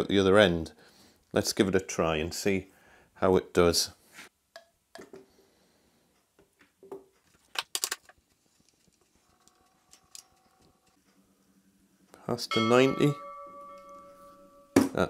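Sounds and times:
test rig clicking and creaking: 0:08.7 - 0:11.2.

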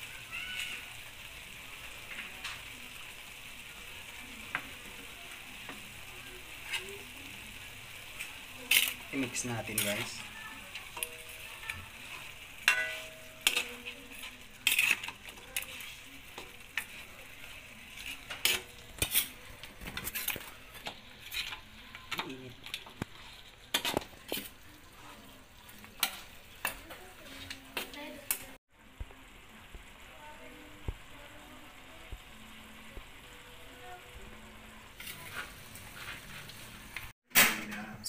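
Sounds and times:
light sizzle from pan: 0:00.0 - 0:38.0
metal spatula scraping wok: 0:06.4 - 0:25.3, 0:34.9 - 0:37.0.

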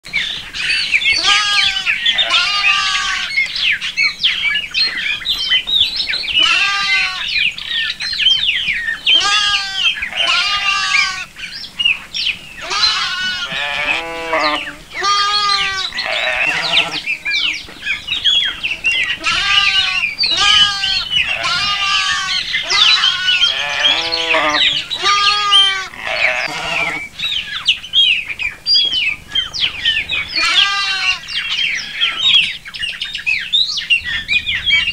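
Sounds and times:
sheep bleating: 0:01.1 - 0:03.4, 0:06.4 - 0:07.4, 0:09.1 - 0:11.3, 0:12.6 - 0:17.6, 0:18.4 - 0:27.1, 0:30.4 - 0:31.3.

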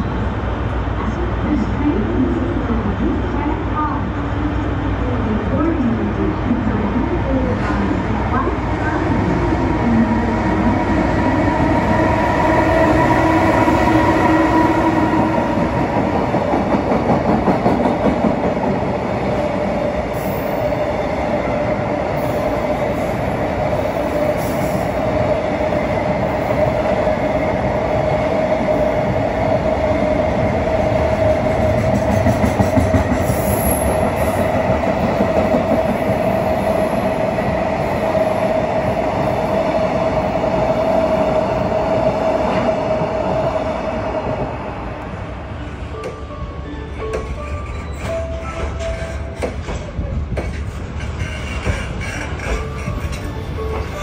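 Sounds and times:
train wheels clicking over rail joints: 0:47.1 - 0:54.0.

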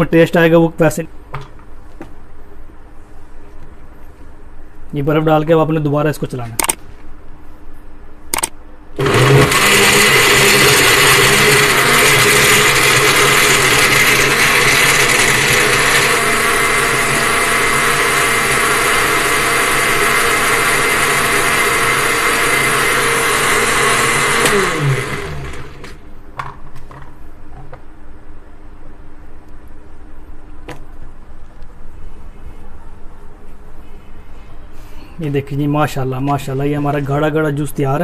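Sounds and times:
blender spinning down: 0:09.0 - 0:26.0
electric blender running: 0:09.0 - 0:26.0.

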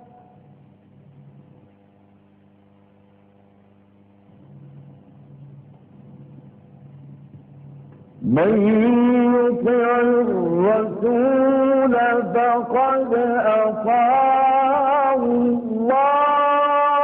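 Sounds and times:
faint steady hum: 0:00.0 - 0:17.0
man reciting melodically: 0:08.2 - 0:17.0.

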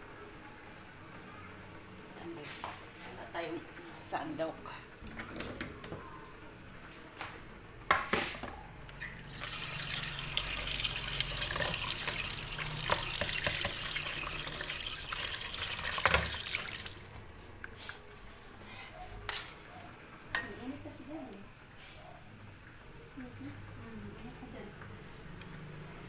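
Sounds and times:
tap running into plastic basin: 0:09.3 - 0:17.1.

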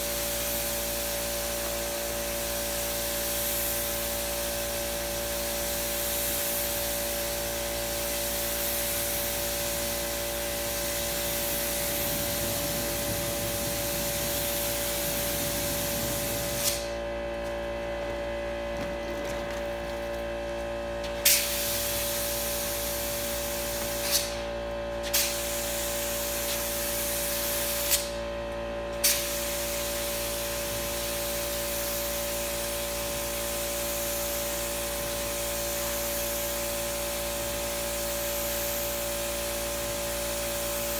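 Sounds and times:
spray gun hissing: 0:00.0 - 0:17.0, 0:21.2 - 0:24.4, 0:25.1 - 0:28.1
steady hum: 0:00.0 - 0:40.9.

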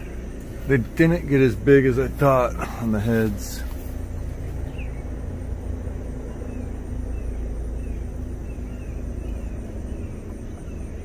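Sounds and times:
steady low rumble: 0:00.0 - 0:11.0
small bird chirping: 0:03.2 - 0:11.0.

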